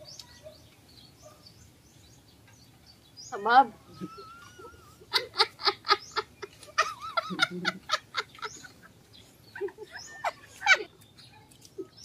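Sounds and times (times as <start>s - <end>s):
people laughing heartily: 4.0s - 10.9s.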